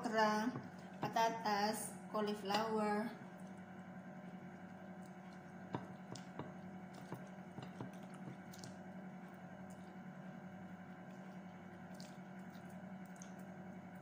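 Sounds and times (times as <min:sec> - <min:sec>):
wet chewing sounds: 0:03.2 - 0:14.0
fingers squishing food: 0:04.3 - 0:14.0.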